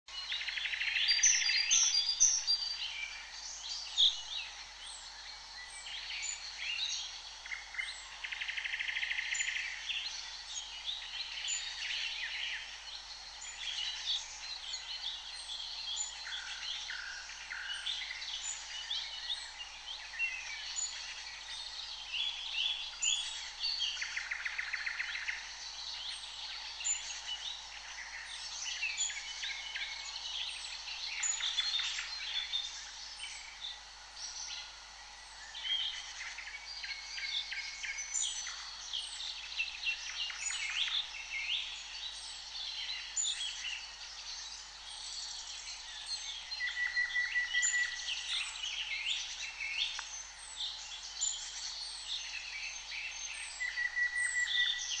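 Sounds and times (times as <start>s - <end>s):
songbirds singing and chirping: 0.1s - 55.0s.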